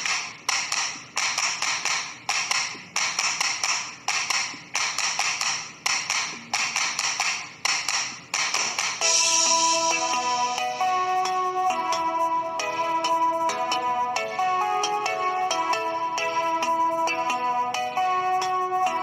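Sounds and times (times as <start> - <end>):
plucked-string background music: 9.0 - 19.0.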